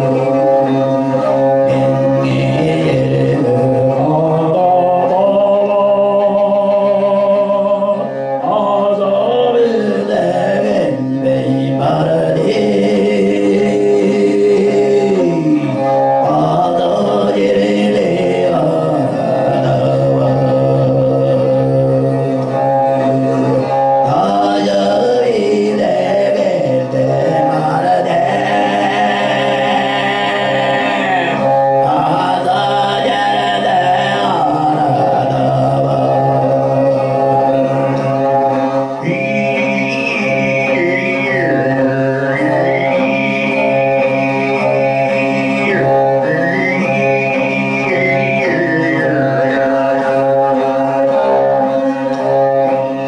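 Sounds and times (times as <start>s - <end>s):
bowed fiddle: 0.0s - 53.0s.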